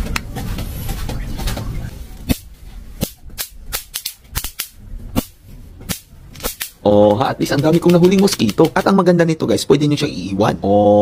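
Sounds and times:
electric swatter zapping: 2.2s - 6.8s.

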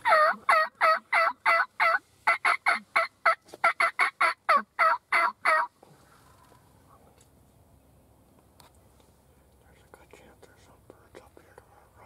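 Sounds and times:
turkey yelps: 0.0s - 5.7s.

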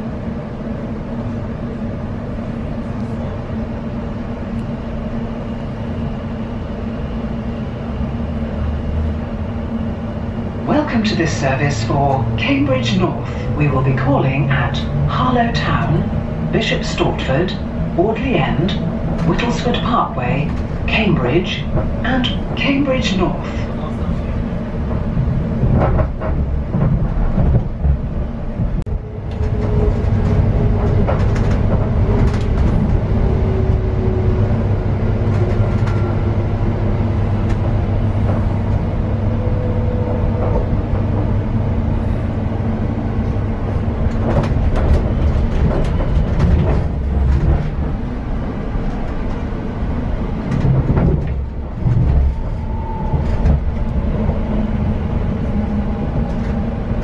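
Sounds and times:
train rumble on track: 0.0s - 57.0s.

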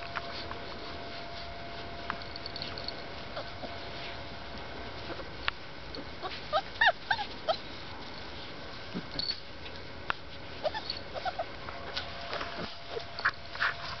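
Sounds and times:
puppies whimpering and yipping: 3.2s - 3.8s, 6.1s - 7.8s, 10.5s - 11.6s, 12.4s - 14.0s.

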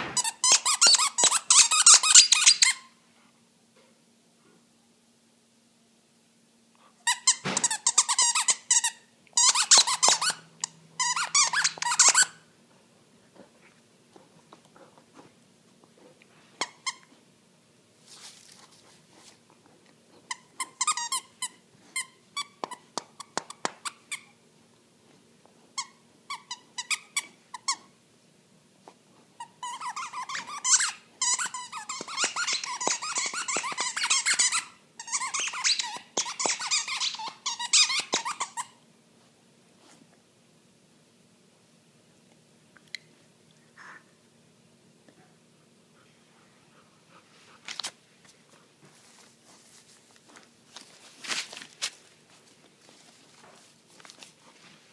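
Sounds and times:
squeaky toy squeaking: 0.2s - 2.9s, 7.1s - 12.4s, 20.3s - 22.6s, 25.8s - 27.9s, 29.4s - 38.8s.

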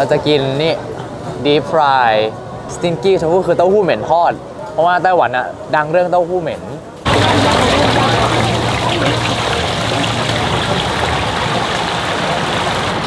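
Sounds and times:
oil sizzling in deep fryer: 7.1s - 13.0s.

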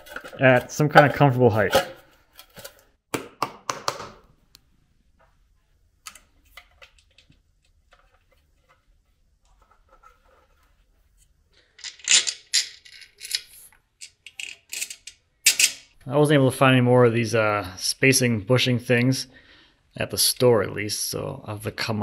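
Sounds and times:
bolt scraping and rattling: 11.8s - 16.0s
metal parts clicking and tapping: 11.8s - 16.0s.

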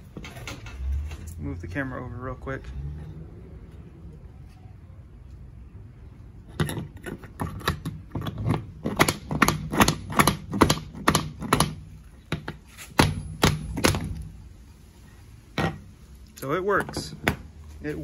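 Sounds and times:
hammer knocking on nail: 8.8s - 14.1s.

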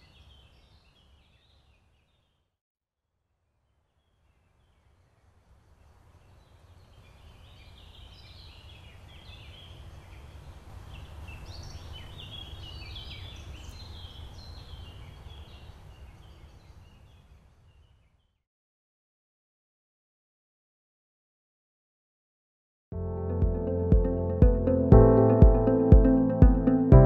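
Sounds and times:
birds chirping: 5.7s - 18.3s.

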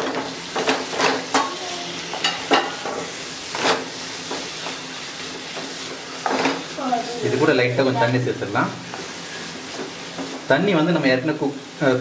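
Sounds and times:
pan sizzling: 0.0s - 12.0s
wooden spatula scraping a pan: 2.1s - 7.5s.

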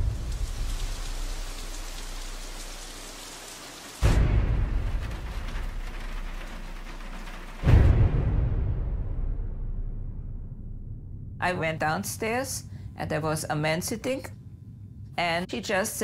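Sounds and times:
deep booming thunder-like impacts: 4.0s - 11.4s
steady low hum: 10.4s - 16.0s.

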